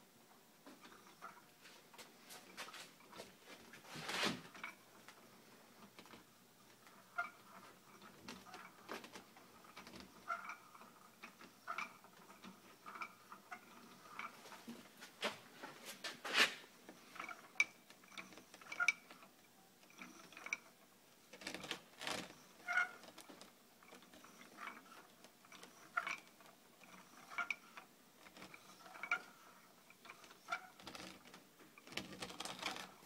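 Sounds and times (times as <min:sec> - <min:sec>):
wheel squeaking: 0:16.0 - 0:19.3, 0:21.4 - 0:33.0.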